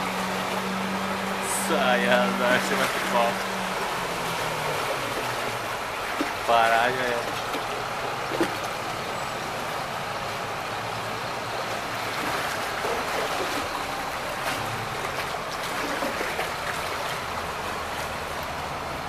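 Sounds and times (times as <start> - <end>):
floodwater rushing and sloshing: 0.0 - 19.0
bus engine running low: 7.7 - 19.0.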